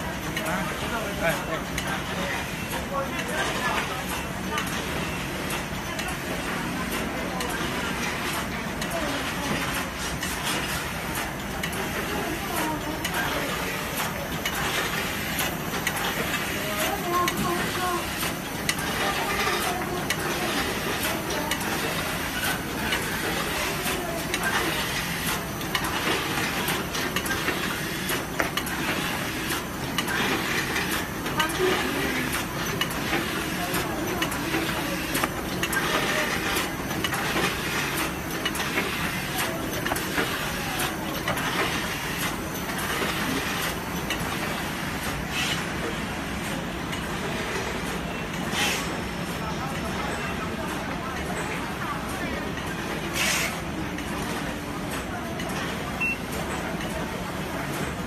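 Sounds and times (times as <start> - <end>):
packaging machine clatter: 0.3 - 45.2.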